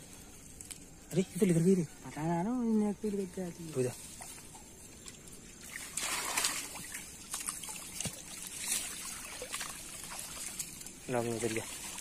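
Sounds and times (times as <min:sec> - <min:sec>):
river water splashing: 0:03.5 - 0:12.0.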